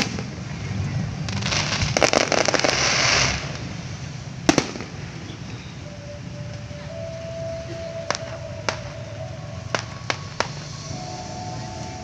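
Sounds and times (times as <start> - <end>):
fireworks crackling pops: 0.0 - 0.4, 1.2 - 5.7, 8.1 - 9.0, 9.6 - 12.0
firework sharp bang: 4.5 - 5.0.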